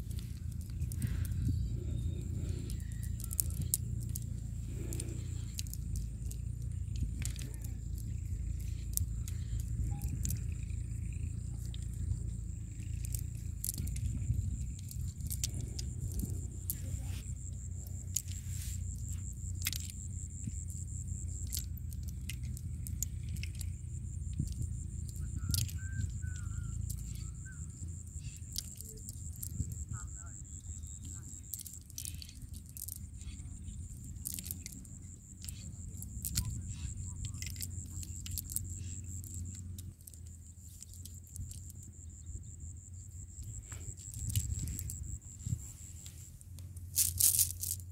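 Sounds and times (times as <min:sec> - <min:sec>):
net rustling and shells clicking: 0:00.0 - 0:17.3, 0:17.9 - 0:24.9, 0:28.0 - 0:29.8, 0:31.0 - 0:42.4, 0:43.3 - 0:47.9
steady low rumble: 0:00.0 - 0:47.9.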